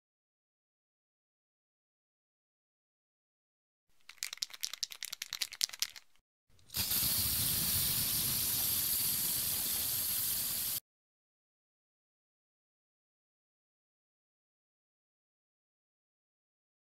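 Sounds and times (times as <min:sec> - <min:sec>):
spray can ball rattling: 0:04.0 - 0:10.8
spray paint hissing: 0:06.7 - 0:10.8.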